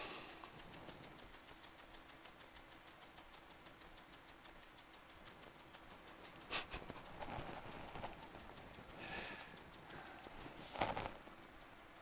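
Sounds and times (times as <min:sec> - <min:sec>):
dog licking leather cushion: 0:06.2 - 0:08.8.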